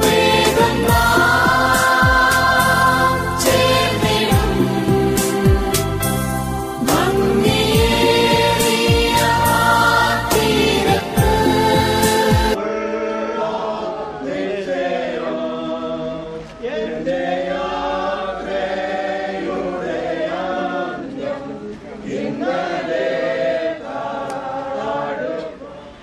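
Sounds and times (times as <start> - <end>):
group singing a hymn: 0.0 - 26.0.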